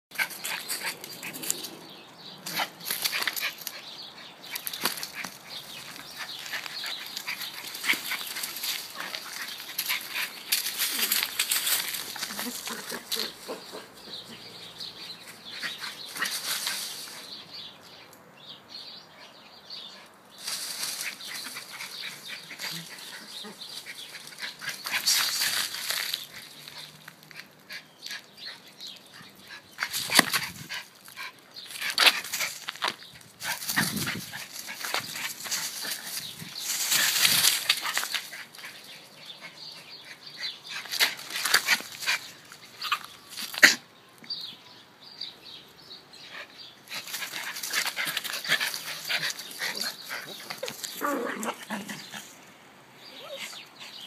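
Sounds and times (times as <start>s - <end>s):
rustling dry leaves: 0.2s - 17.7s, 20.3s - 27.6s, 29.6s - 39.2s, 40.7s - 43.8s, 46.8s - 52.4s.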